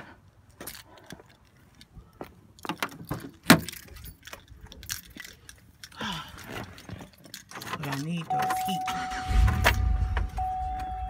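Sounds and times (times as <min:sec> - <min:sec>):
keys jangling: 0:02.6 - 0:08.8.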